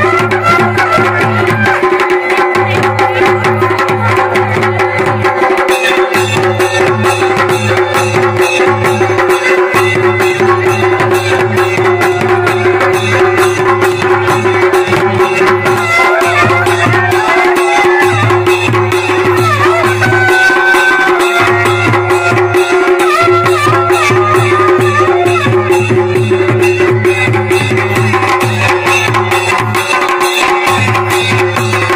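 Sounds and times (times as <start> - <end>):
drums beating steady rhythm: 0.0 - 31.9
bagpipe melody over drone: 8.4 - 27.9.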